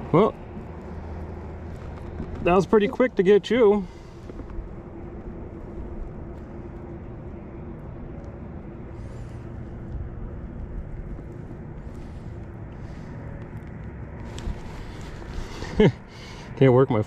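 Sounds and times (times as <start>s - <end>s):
faint steady hum: 0.0s - 17.0s
road traffic rumble: 0.0s - 17.0s.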